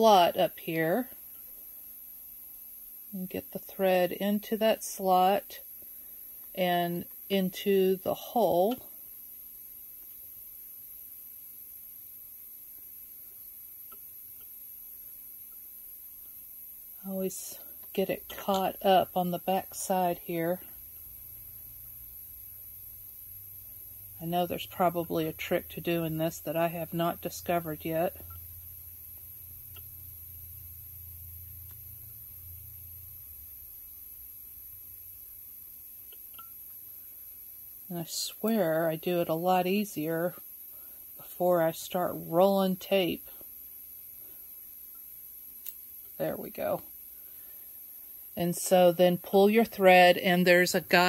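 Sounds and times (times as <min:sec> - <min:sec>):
electrical mains hum: 0:00.0 - 0:51.0
faint high-pitched whine: 0:00.0 - 0:51.0
faint ticks: 0:13.8 - 0:14.6, 0:43.4 - 0:46.2.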